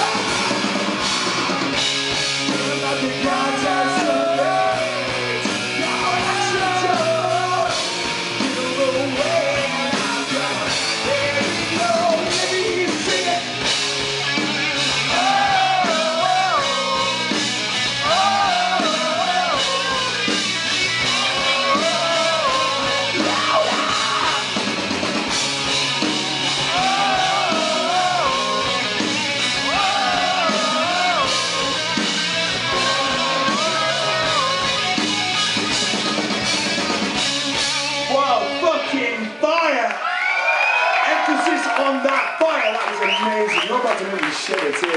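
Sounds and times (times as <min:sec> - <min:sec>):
drum kit: 0:00.0 - 0:39.0
electric guitars: 0:00.0 - 0:39.4
person singing: 0:02.5 - 0:07.8, 0:15.1 - 0:17.2, 0:18.0 - 0:20.3, 0:21.1 - 0:24.5, 0:26.7 - 0:29.0, 0:29.6 - 0:34.9.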